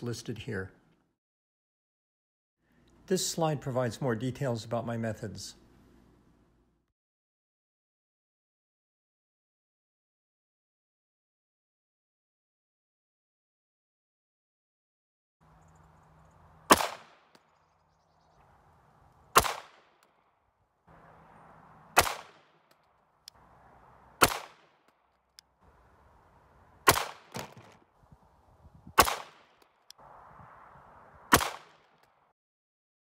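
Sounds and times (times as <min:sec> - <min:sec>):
pistol shots: 0:16.7 - 0:17.3, 0:19.3 - 0:20.0, 0:22.0 - 0:22.7, 0:24.2 - 0:24.9, 0:26.8 - 0:27.7, 0:29.0 - 0:29.6, 0:31.3 - 0:32.0.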